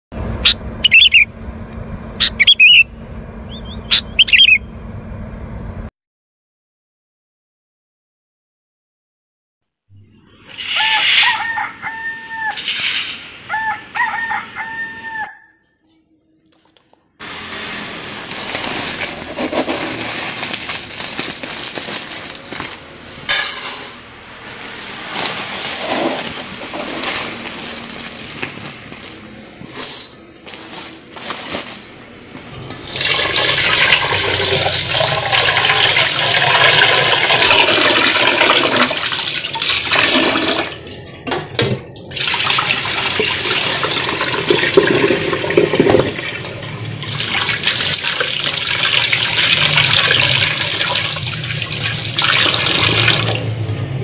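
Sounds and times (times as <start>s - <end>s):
rooster crowing: 10.6s - 12.8s, 13.4s - 15.8s.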